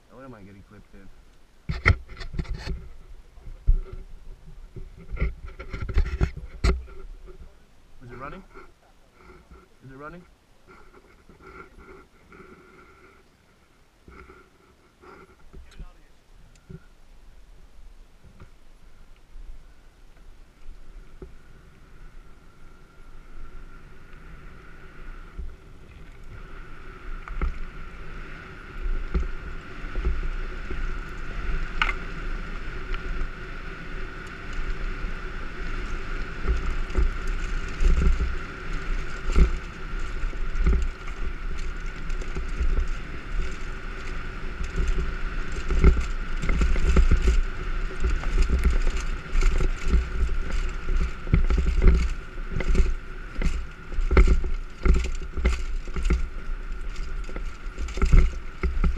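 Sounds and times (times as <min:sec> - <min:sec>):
bike tyre noise on dirt: 0:00.0 - 0:58.9
wind rumble on microphone: 0:00.0 - 0:58.9
bike knocks and rattles: 0:29.0 - 0:58.9.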